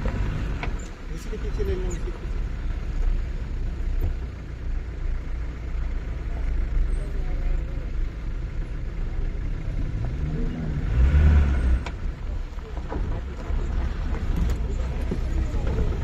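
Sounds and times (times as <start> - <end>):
vehicle engine rumbling and revving: 0.0 - 16.0.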